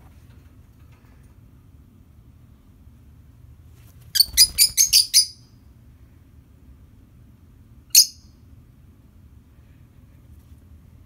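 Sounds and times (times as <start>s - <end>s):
lovebird chirping: 4.2s - 5.5s, 7.9s - 8.3s.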